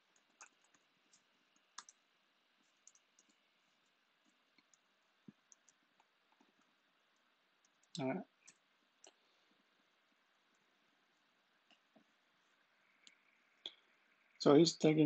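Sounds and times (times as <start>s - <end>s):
computer mouse and key clicks: 0.0s - 2.0s, 2.6s - 6.7s, 7.6s - 9.2s.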